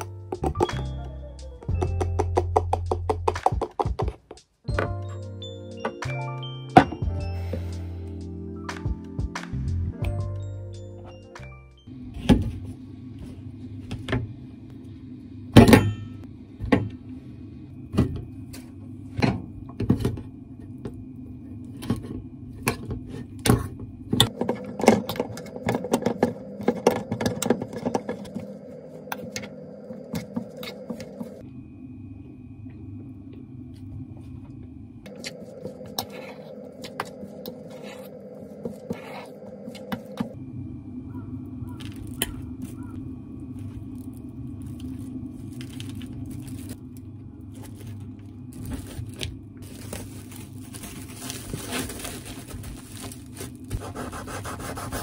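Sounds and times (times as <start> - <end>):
steady low hum: 11.8 - 55.0.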